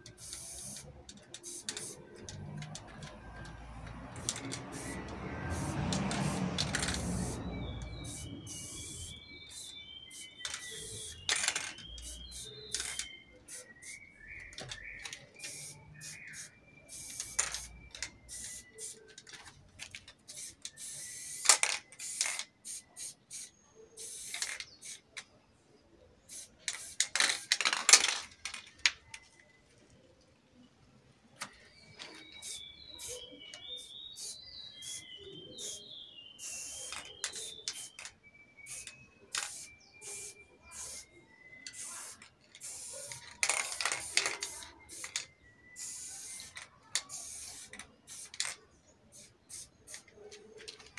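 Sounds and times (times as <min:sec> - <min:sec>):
spray paint can hissing: 0:00.0 - 0:25.1, 0:26.3 - 0:28.1, 0:32.1 - 0:35.8, 0:36.4 - 0:50.9
small birds chirping: 0:00.0 - 0:27.5, 0:28.2 - 0:50.9
mixing ball rattling in can: 0:41.8 - 0:45.2.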